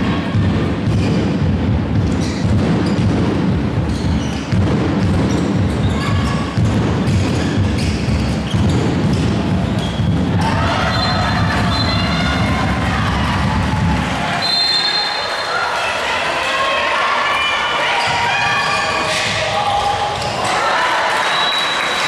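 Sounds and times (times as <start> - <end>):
ball bouncing on floor: 3.9 - 10.5
shoes squeaking: 5.2 - 10.2.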